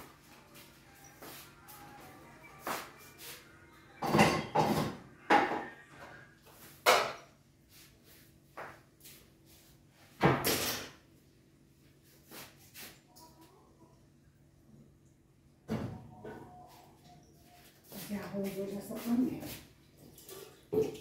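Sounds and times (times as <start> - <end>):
kitchen items knocking and clanking: 4.0 - 5.8, 6.8 - 7.3, 10.2 - 11.0, 20.3 - 21.0.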